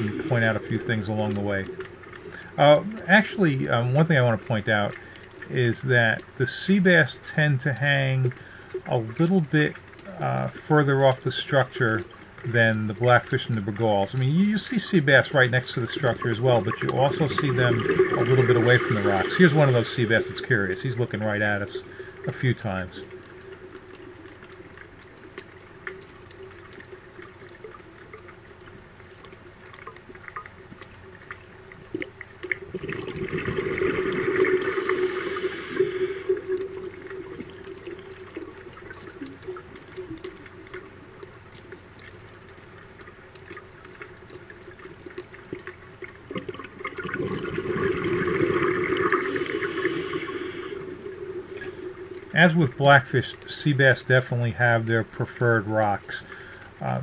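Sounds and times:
underwater bubbling exhalations: 0:00.0 - 0:05.8, 0:15.0 - 0:28.3, 0:31.3 - 0:41.7, 0:44.6 - 0:54.8
steady low hum: 0:00.0 - 0:46.1, 0:47.1 - 0:57.0.

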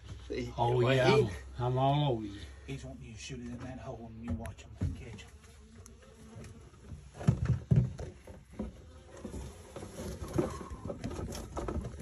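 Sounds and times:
bees buzzing: 0:04.7 - 0:12.0
dull thumps: 0:06.3 - 0:12.0.

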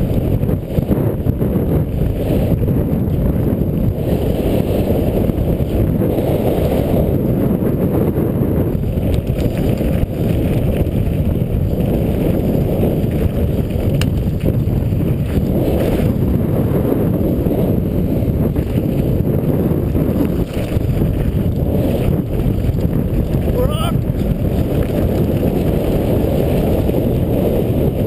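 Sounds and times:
wind buffeting microphone: 0:00.0 - 0:28.0
tyres rumbling over gravel: 0:08.1 - 0:28.0.

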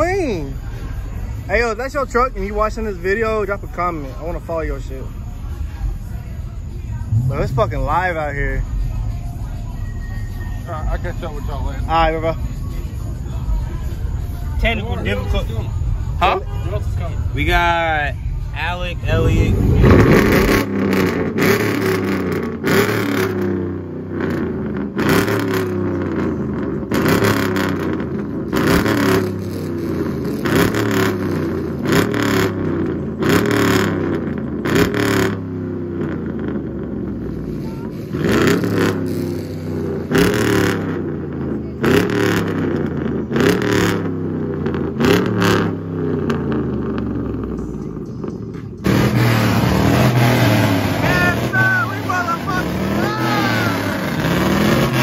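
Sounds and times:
loud exhaust revving: 0:07.0 - 0:08.8, 0:18.4 - 0:55.0.

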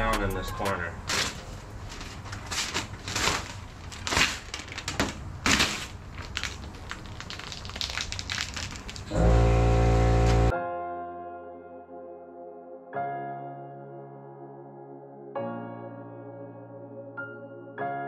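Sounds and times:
loud music: 0:00.0 - 0:00.9
vinyl film crinkling: 0:01.0 - 0:09.2.

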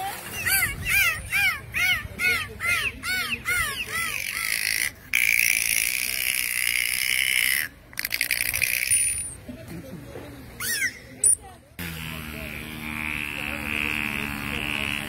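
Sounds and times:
dolphin high squeal: 0:00.2 - 0:04.7, 0:10.6 - 0:11.3
dolphin whistles: 0:10.6 - 0:11.4.

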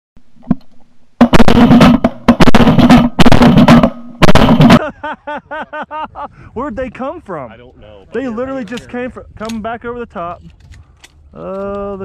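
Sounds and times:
loud drum-heavy music: 0:01.2 - 0:04.8.

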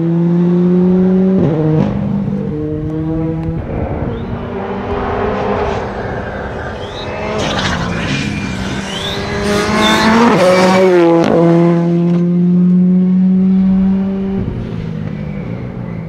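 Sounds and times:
rally car engine passing: 0:00.0 - 0:16.0
exhaust cracks: 0:02.8 - 0:11.5.

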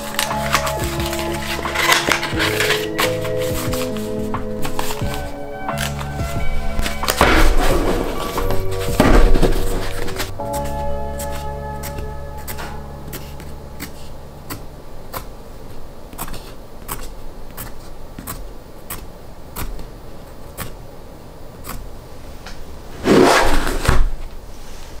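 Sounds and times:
pencil tapping on notebooks: 0:00.0 - 0:07.3, 0:08.5 - 0:19.9
notebook stack scraping: 0:00.0 - 0:20.8, 0:22.9 - 0:25.0.

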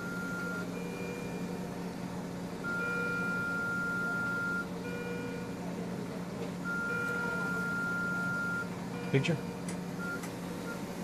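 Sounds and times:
high x-ray exposure beep: 0:00.0 - 0:01.6, 0:02.6 - 0:05.6, 0:06.6 - 0:10.9
machine hum: 0:00.0 - 0:11.0.

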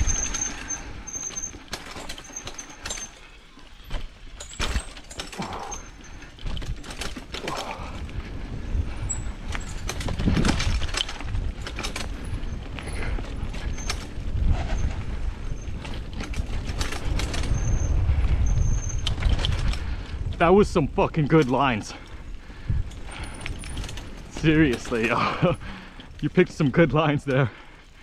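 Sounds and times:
bike chain and frame rattling: 0:00.0 - 0:28.0
wind rumble on microphone: 0:05.4 - 0:26.4
short high squeaks: 0:17.3 - 0:19.2.

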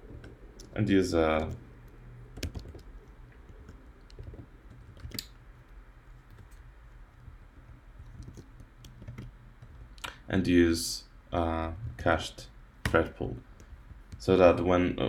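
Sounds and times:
low steady hum: 0:00.0 - 0:15.0
computer keyboard keystrokes: 0:02.3 - 0:05.4, 0:07.2 - 0:10.2.

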